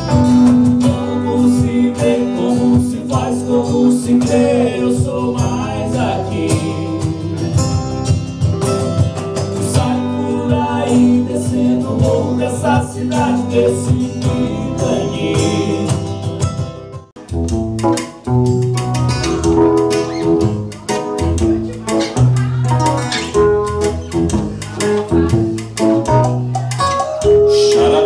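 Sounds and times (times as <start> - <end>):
acoustic-electric guitar: 0.0 - 28.0
hand percussion: 0.0 - 28.0
heavy bass notes: 0.0 - 28.0
keyboard: 0.0 - 28.0
man singing: 0.3 - 7.7, 9.6 - 16.2, 27.2 - 28.0.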